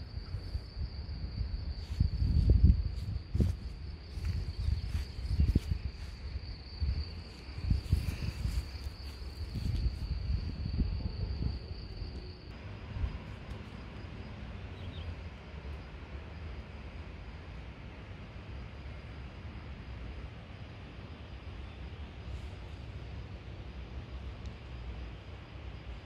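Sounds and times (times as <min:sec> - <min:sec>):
insects chirring: 0:00.0 - 0:26.0
wind rumbling on microphone: 0:00.0 - 0:26.0.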